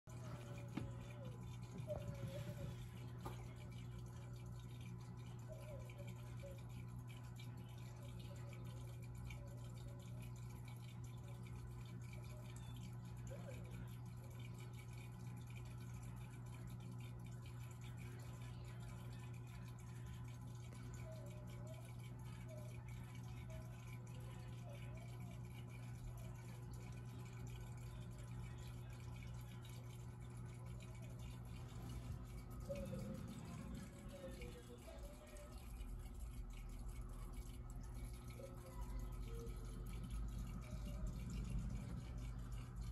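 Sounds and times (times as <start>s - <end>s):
aquarium filter pump humming: 0.0s - 42.9s
water trickling: 0.1s - 42.9s
small bubbling blips: 25.4s - 42.9s.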